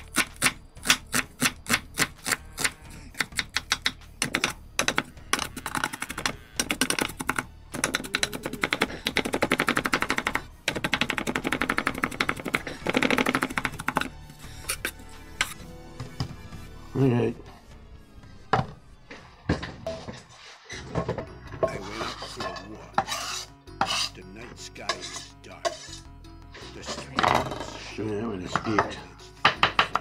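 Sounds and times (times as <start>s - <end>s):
knife chopping on wooden board: 0.0s - 14.1s.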